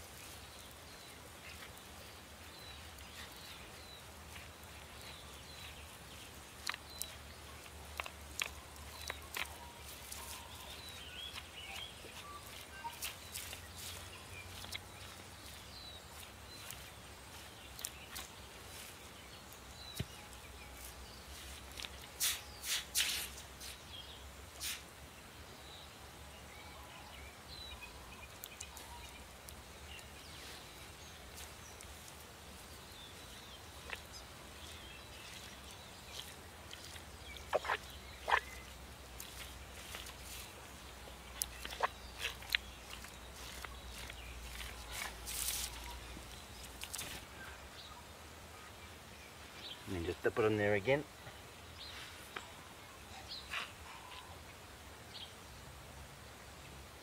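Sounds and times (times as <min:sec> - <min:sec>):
faint bird chirps: 0:00.2 - 0:24.8, 0:25.6 - 0:55.4.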